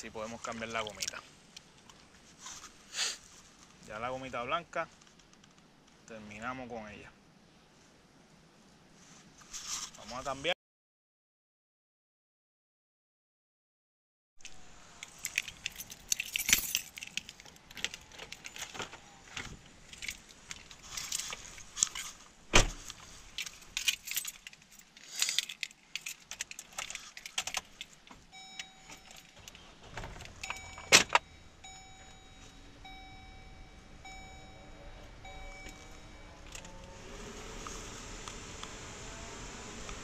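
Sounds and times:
fishing tackle rattling in a box: 23.4 - 28.0.

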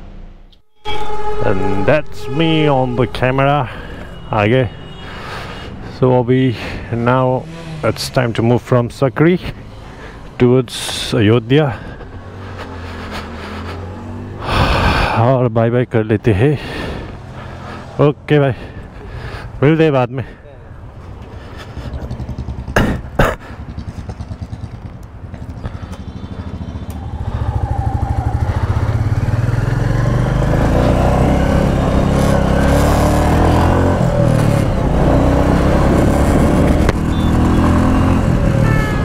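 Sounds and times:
motorcycle accelerating through gears: 5.7 - 14.5, 21.0 - 39.0
motorcycle engine thumping: 36.7 - 37.2.

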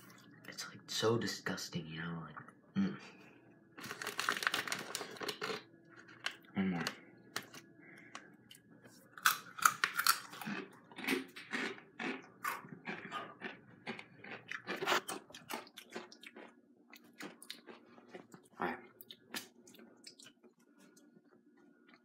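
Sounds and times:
chips crunching while chewed: 3.8 - 7.6, 9.1 - 21.0.

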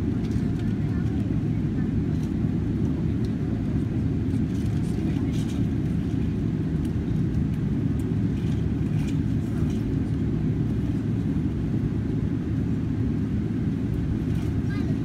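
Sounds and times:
jet engines idling cabin drone: 0.0 - 15.0.

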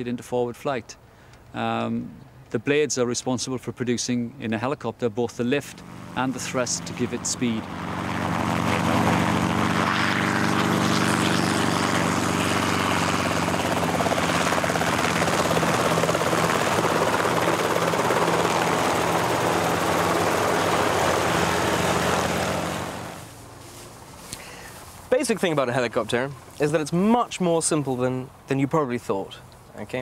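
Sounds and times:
helicopter rotor and engine: 5.7 - 23.4.

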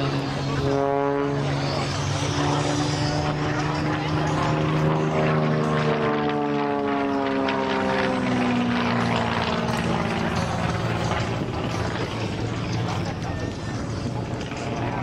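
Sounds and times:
propeller plane engine droning: 0.0 - 15.0.

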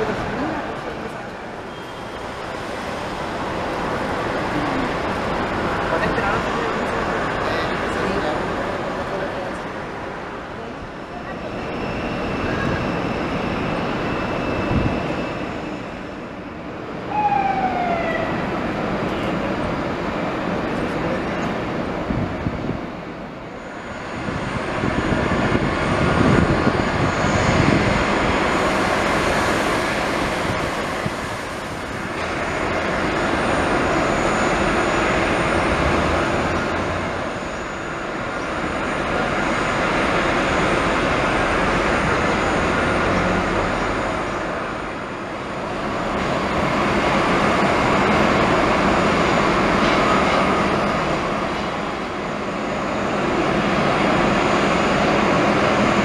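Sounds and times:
jet engine roar: 0.0 - 56.0
faint high whine: 10.6 - 19.6.

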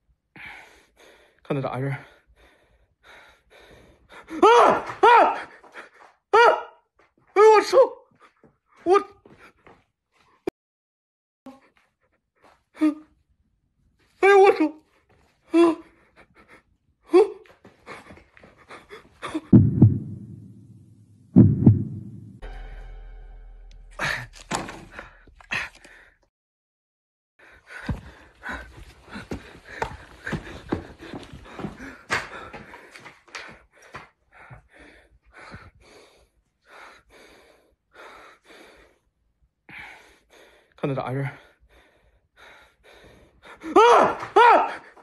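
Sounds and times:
man breathing heavily: 0.3 - 4.4, 15.4 - 19.5, 24.0 - 26.3, 27.4 - 43.8
heartbeat double thumps: 19.4 - 22.4.

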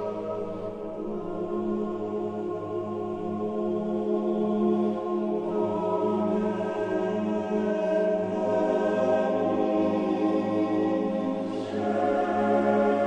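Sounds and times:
choir singing chant: 0.0 - 13.0.

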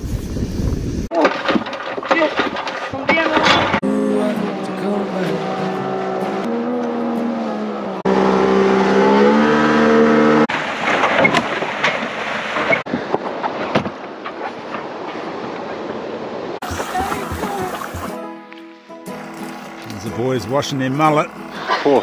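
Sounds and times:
outboard motor running: 3.8 - 11.6, 16.6 - 18.4, 19.0 - 22.0.

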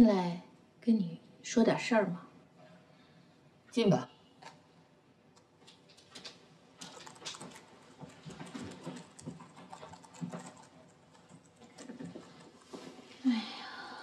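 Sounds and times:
soft footsteps: 5.6 - 13.3
typing on laptop keyboard: 6.0 - 12.6.

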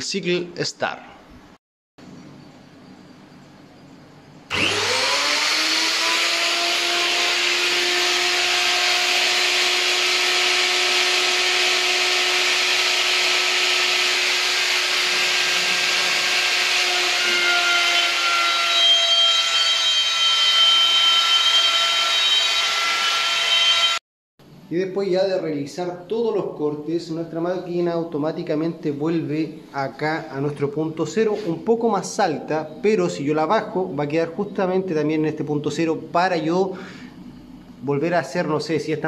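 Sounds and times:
router motor whine: 4.5 - 24.0.

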